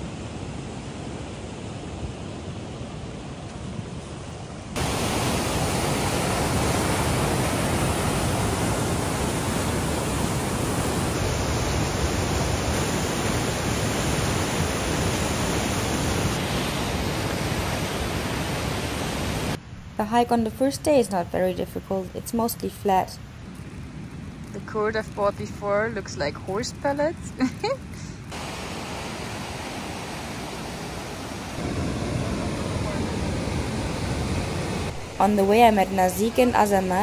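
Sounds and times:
river rushing: 0.0s - 19.9s, 28.2s - 37.0s.

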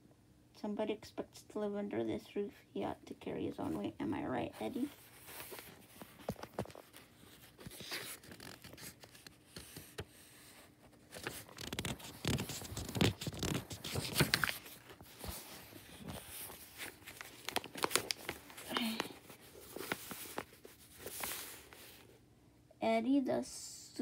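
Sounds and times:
book pages rustling: 4.6s - 22.2s.

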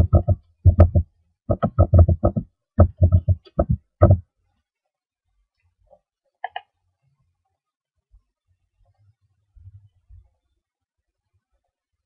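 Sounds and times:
keyboard typing: 0.0s - 4.2s.

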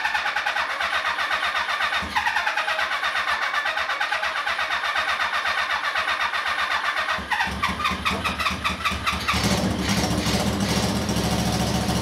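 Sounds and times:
motorcycle electric starter cranking: 0.0s - 12.0s
motorcycle engine running: 0.0s - 12.0s.

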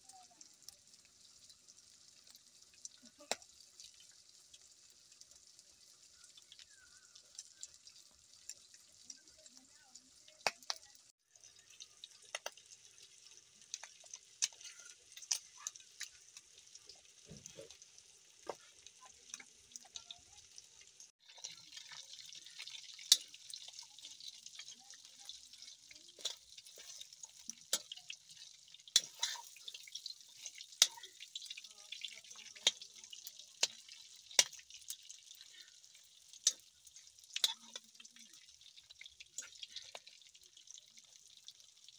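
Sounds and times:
meat sizzling in oil: 0.0s - 41.9s
ladle scraping wok: 28.9s - 31.0s.

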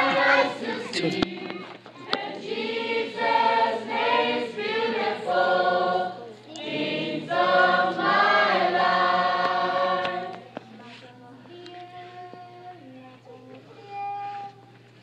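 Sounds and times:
group of voices singing: 0.0s - 10.6s.

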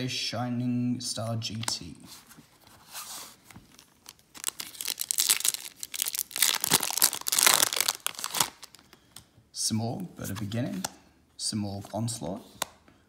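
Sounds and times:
foil wrapper crinkling and tearing: 3.7s - 8.9s.

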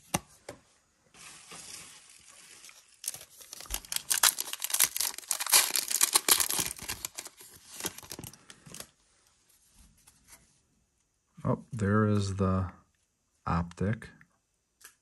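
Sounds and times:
foil wrapper crinkling: 1.2s - 8.9s.

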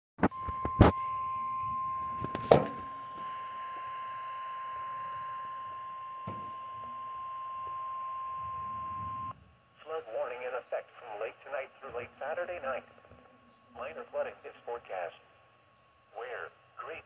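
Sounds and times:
steady alarm tone: 0.3s - 9.4s.

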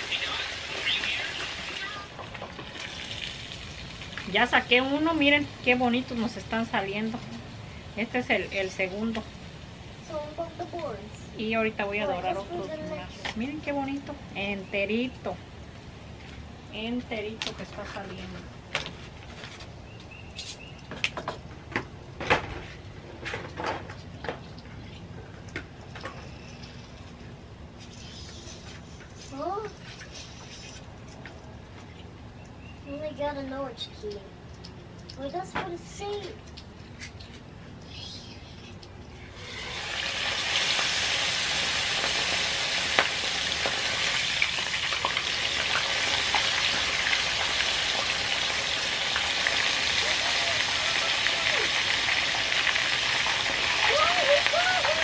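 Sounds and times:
oil popping and crackling: 0.0s - 9.7s, 38.8s - 55.0s
fish sizzling in hot oil: 0.0s - 10.4s, 39.3s - 55.0s.

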